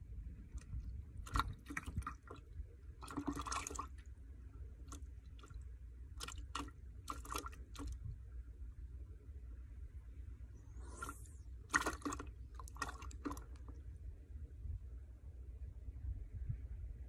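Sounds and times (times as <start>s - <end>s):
wind rumble on microphone: 0.0s - 3.9s, 7.8s - 11.7s, 13.6s - 17.0s.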